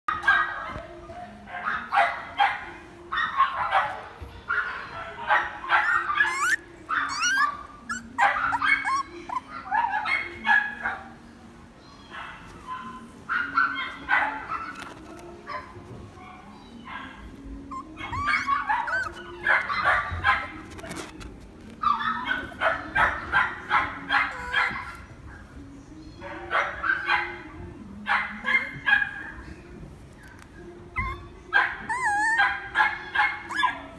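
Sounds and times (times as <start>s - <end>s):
puppy yipping and whimpering: 5.7s - 10.4s, 17.6s - 23.2s, 23.8s - 25.1s, 31.0s - 33.9s.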